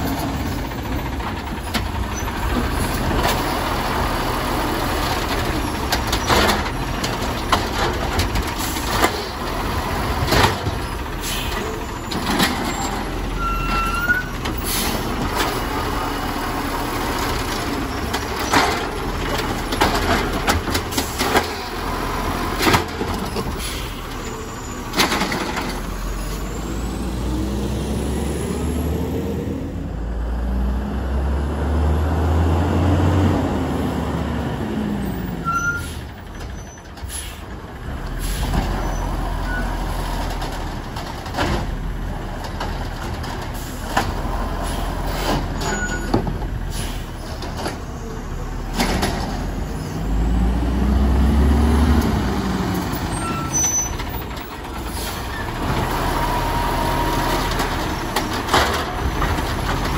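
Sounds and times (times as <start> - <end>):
truck engine revving: 0.0 - 36.3, 37.5 - 59.9
truck arm clunks and bangs: 5.0 - 15.8, 17.2 - 23.7, 24.9 - 26.0, 40.2 - 44.4, 45.0 - 46.6, 48.6 - 49.6, 57.2 - 59.9.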